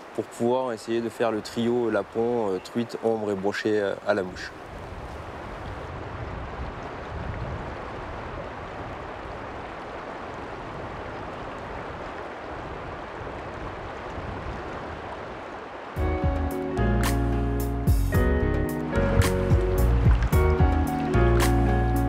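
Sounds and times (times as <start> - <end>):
river water flowing: 0.0 - 22.0
music: 16.0 - 22.0.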